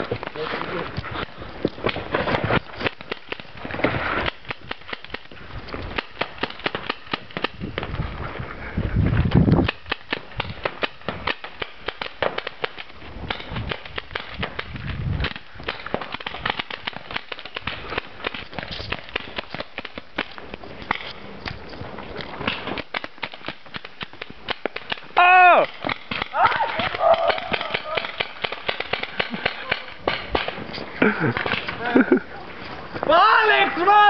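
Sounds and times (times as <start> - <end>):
paintball markers popping: 9.5 - 21.6.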